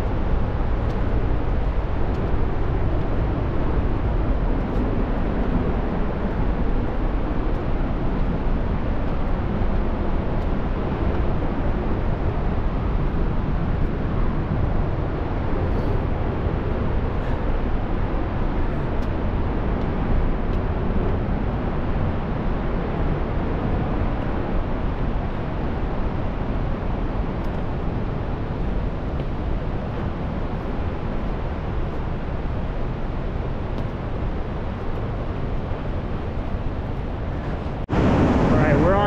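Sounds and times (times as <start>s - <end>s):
steady rushing noise: 0.0s - 39.0s.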